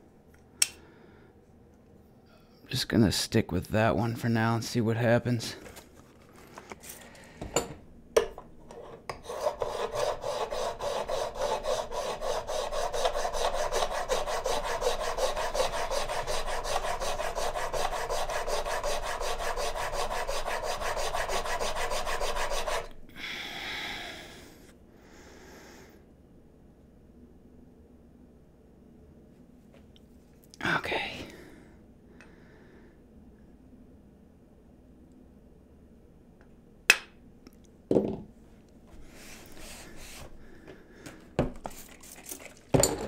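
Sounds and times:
steel scraping on sharpening plate: 0:08.7 - 0:22.9
soft rubbing: 0:38.9 - 0:40.4.

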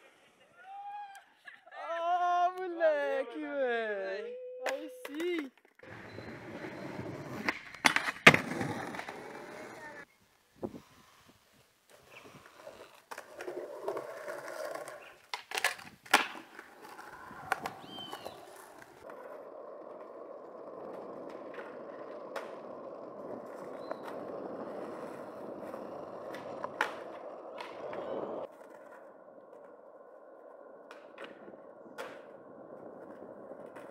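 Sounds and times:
skateboard clacking on ground: 0:04.6 - 0:10.1, 0:12.4 - 0:33.9
skateboard wheels rolling: 0:04.6 - 0:33.9.

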